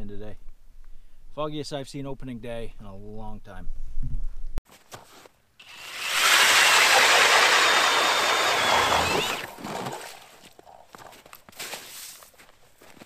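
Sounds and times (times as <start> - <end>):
ice auger grinding: 5.6 - 10.5.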